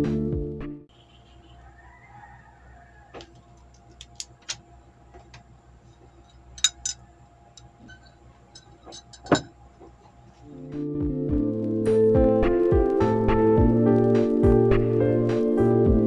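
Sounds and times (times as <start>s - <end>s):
glass knocking: 7.8s - 9.6s.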